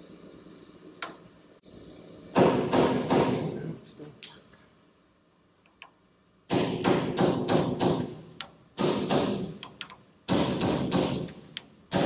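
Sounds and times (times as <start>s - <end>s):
hammer knocking on metal: 6.5s - 8.1s.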